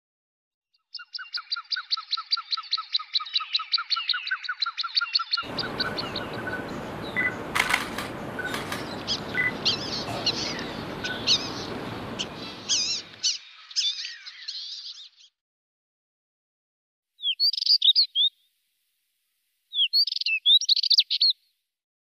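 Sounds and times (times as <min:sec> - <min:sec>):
high warbling birdsong: 0:01.0 - 0:15.3
songbirds chattering: 0:05.4 - 0:14.9
background hiss: 0:05.5 - 0:13.2
sharp clicks: 0:05.5 - 0:13.2.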